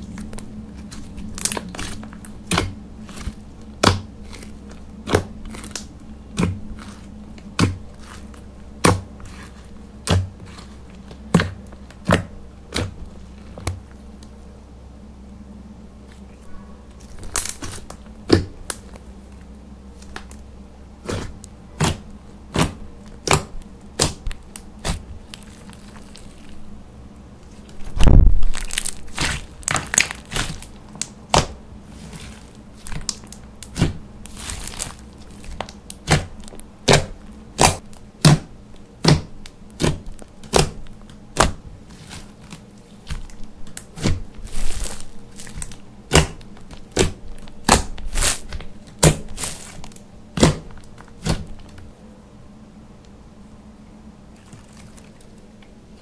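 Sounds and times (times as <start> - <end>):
loud slime squelch: 0.0 - 14.0, 16.0 - 19.0, 21.0 - 51.8
slime clicking and popping: 44.8 - 49.5.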